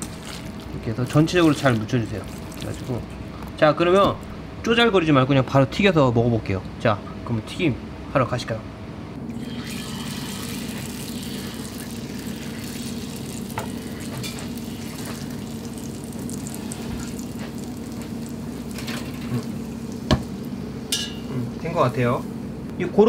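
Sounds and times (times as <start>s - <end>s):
low steady hum: 0.0s - 23.0s
batter sizzling in hot oil: 9.4s - 21.2s.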